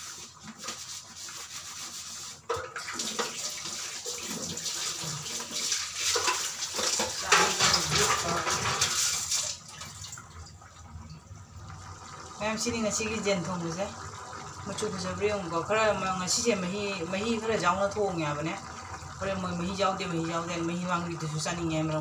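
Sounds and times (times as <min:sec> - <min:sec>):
curry bubbling in a pan: 0:10.3 - 0:22.0.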